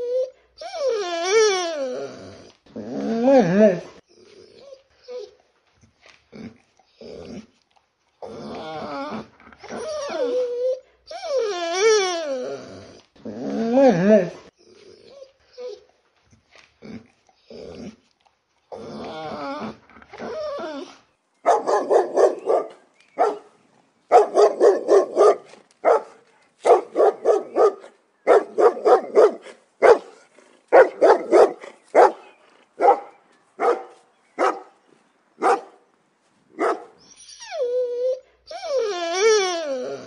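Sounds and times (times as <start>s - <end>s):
dog whining: 0.0s - 5.4s, 8.2s - 15.9s, 18.7s - 21.0s, 37.0s - 40.0s
dog barking: 21.5s - 23.5s, 24.1s - 34.8s, 35.4s - 35.8s, 36.6s - 37.0s.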